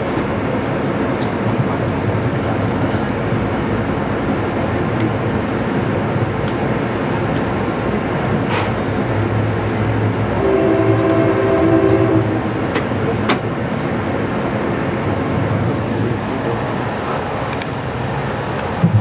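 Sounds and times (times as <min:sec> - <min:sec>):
train rolling noise: 0:00.0 - 0:19.0
locomotive horn: 0:10.3 - 0:12.8.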